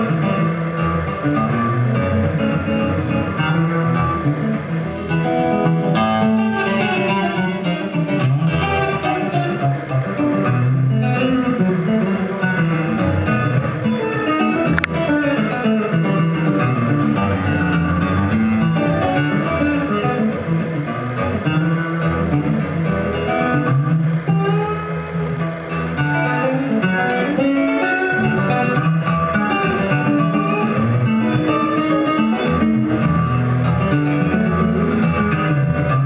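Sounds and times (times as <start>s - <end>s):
acoustic guitar fingerstyle: 0.0s - 36.0s.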